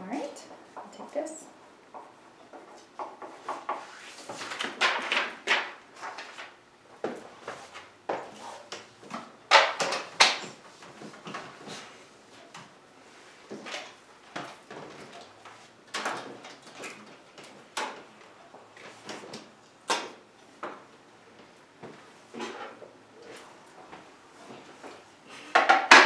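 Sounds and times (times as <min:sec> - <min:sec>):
cards tapping and rustling: 0:03.0 - 0:11.8.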